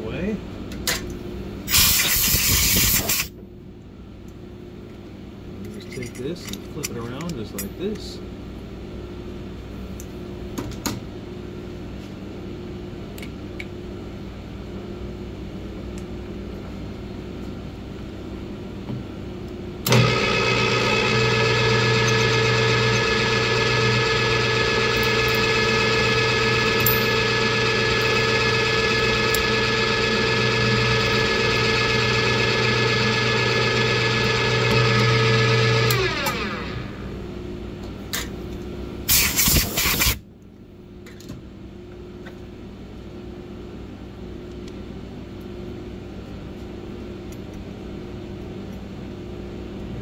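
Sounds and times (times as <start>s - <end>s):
milling machine spindle whine: 19.9s - 37.1s.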